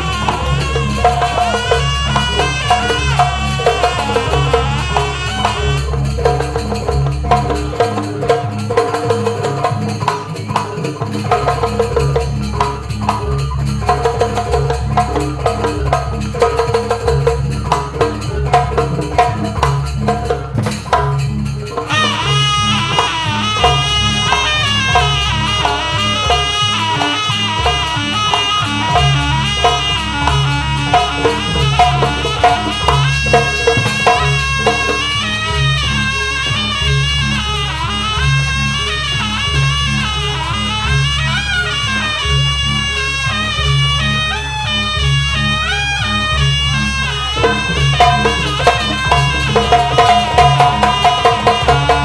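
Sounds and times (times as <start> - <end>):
drum patterns: 0.0 - 52.0
wavering wind instrument melody: 0.0 - 52.0
gong patterns: 18.3 - 38.0.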